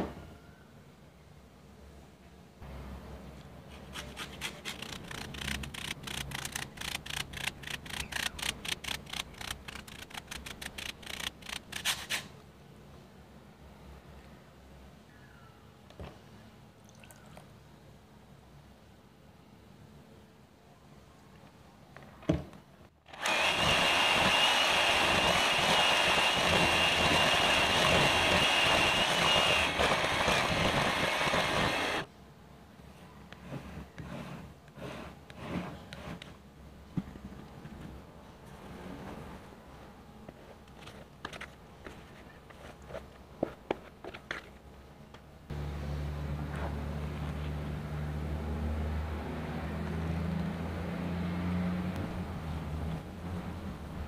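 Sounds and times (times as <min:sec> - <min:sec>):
lemon peel scraping on grater: 0:03.8 - 0:12.3
electric hand mixer whining: 0:23.1 - 0:32.1.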